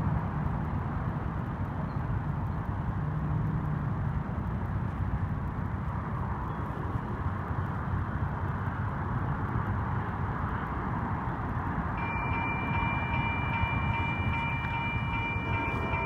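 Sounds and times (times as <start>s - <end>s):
road traffic hum: 0.0s - 16.0s.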